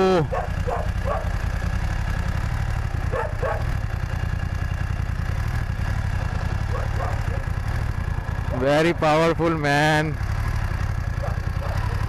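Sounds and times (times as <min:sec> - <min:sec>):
motorcycle engine running: 0:00.0 - 0:12.0
dog barking: 0:00.2 - 0:01.4, 0:03.1 - 0:03.8, 0:06.7 - 0:07.6, 0:11.2 - 0:12.0.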